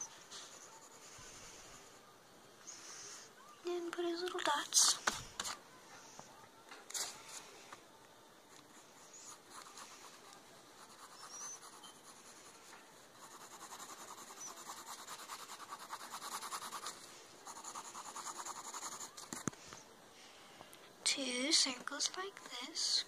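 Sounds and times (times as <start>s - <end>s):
pencil scratching on paper: 0.0s - 1.9s, 8.5s - 19.4s.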